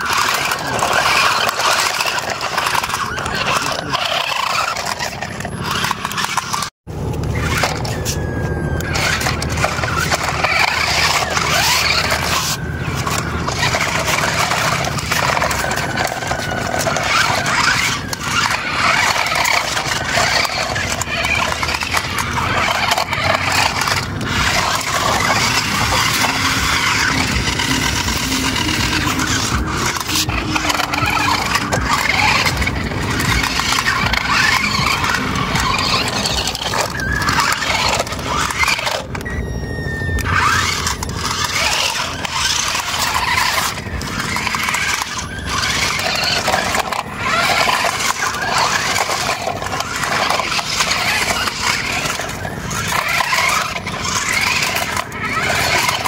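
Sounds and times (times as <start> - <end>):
tyres scrabbling over grit: 0.0 - 39.3, 40.2 - 56.0
toy car motors whining: 0.0 - 56.0.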